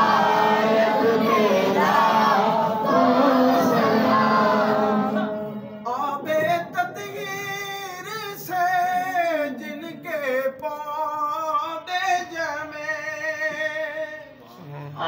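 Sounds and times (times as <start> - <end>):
many voices singing together: 0.0 - 7.6.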